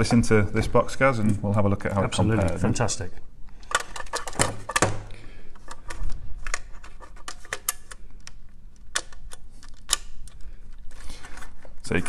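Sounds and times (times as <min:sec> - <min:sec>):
plastic clicks and knocks: 0:03.7 - 0:10.4.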